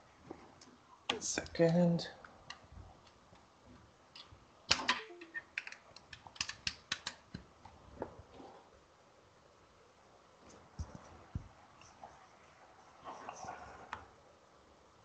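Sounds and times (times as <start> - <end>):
faint keyboard typing: 0.2 - 8.5, 10.4 - 12.5.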